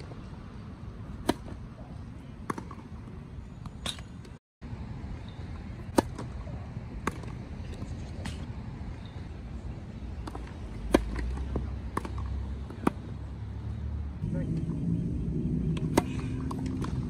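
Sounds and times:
steady low rumble: 0:14.0 - 0:17.0.

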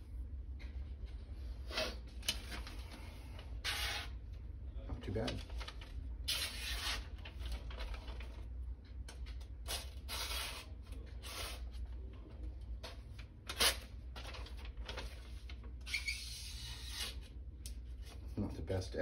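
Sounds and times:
paper rustling: 0:05.1 - 0:08.5, 0:12.8 - 0:16.2.

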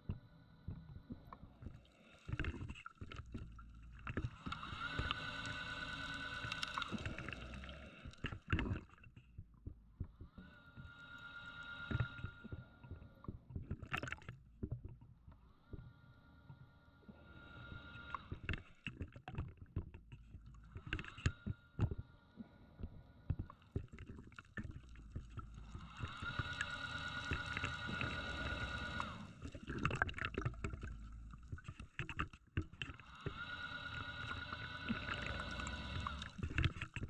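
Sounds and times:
exhaled bubbles rumbling: 0:00.0 - 0:10.9, 0:11.9 - 0:37.0
regulator inhale whistling: 0:04.4 - 0:08.2, 0:10.4 - 0:13.1, 0:25.4 - 0:29.6, 0:33.0 - 0:36.6.

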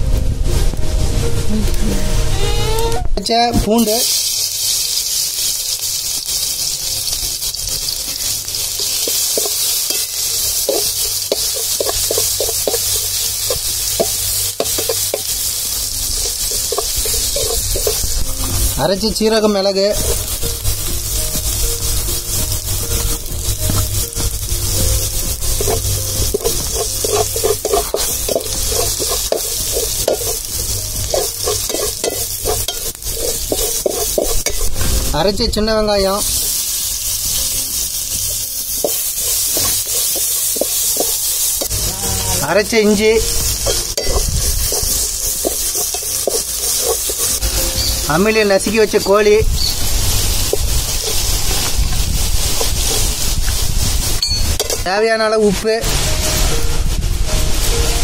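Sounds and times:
garlic sizzling in oil: 0:03.6 - 0:58.0
metal spatula scraping pot: 0:08.1 - 0:15.4, 0:16.1 - 0:18.7, 0:25.5 - 0:35.0, 0:42.7 - 0:49.0, 0:49.6 - 0:53.1.

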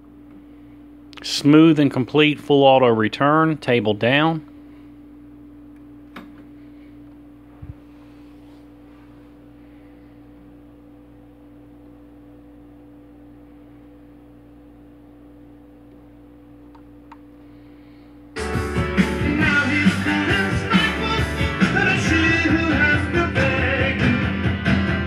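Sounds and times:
turntable motor hum: 0:04.4 - 0:24.0
rock music from record: 0:18.4 - 0:25.0.

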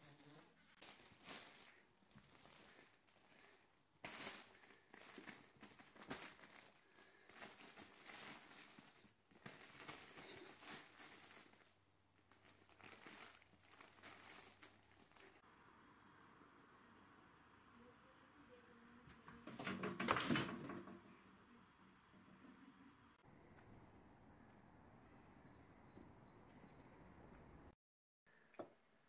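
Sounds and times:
fabric tunnel rustling and crinkling: 0:00.7 - 0:15.4.

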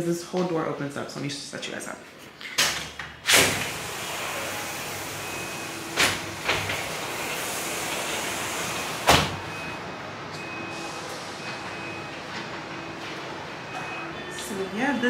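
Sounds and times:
sliding glass door on tracks: 0:02.6 - 0:14.2.

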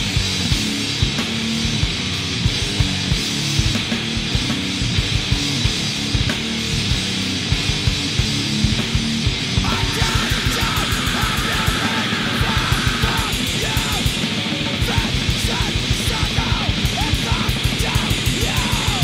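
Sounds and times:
heavy rock music: 0:00.0 - 0:19.0.

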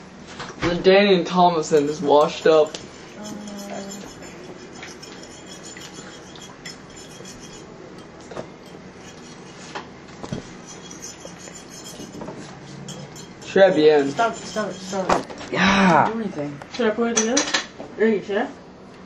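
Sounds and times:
dishes clinking and scraping: 0:01.7 - 0:15.5.

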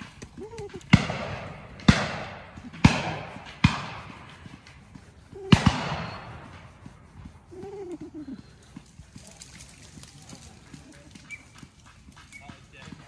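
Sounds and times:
shotgun shots echoing: 0:00.9 - 0:04.2, 0:05.5 - 0:06.4.

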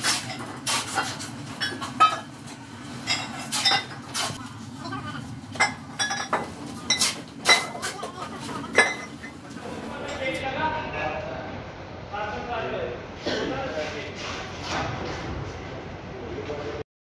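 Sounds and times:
steady low hum: 0:00.1 - 0:16.8
ceramic pieces clinking: 0:05.6 - 0:08.0, 0:08.7 - 0:09.4.

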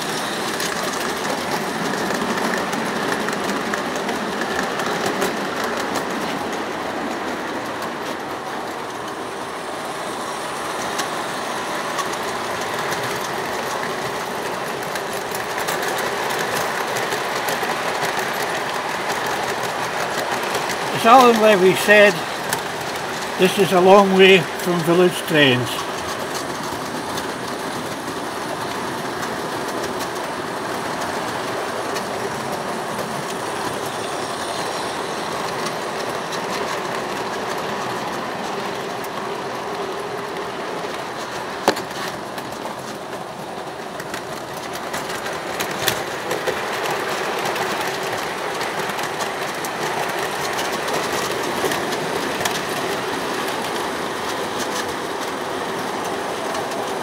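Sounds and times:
model train wheels rattling on rails: 0:00.0 - 0:23.6, 0:24.4 - 0:57.0.

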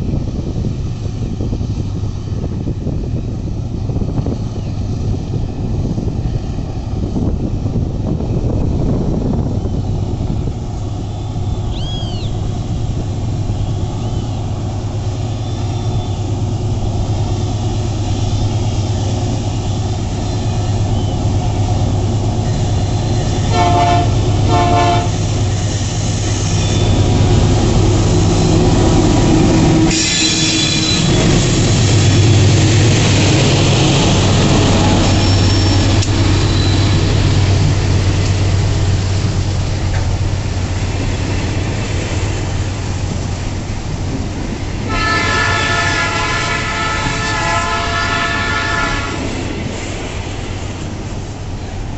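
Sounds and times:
locomotive engine drone: 0:00.0 - 0:51.9
wagons rumbling on rails: 0:00.0 - 0:51.9
train horn blasts: 0:23.4 - 0:25.2, 0:29.8 - 0:31.3, 0:44.9 - 0:49.3.

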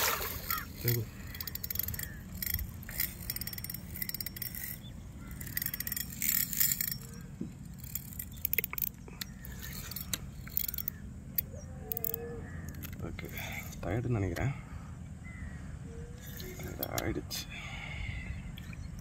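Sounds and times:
fishing reel clicks and rattles: 0:00.0 - 0:13.9, 0:16.2 - 0:17.1
steady low rumble: 0:00.0 - 0:19.0.

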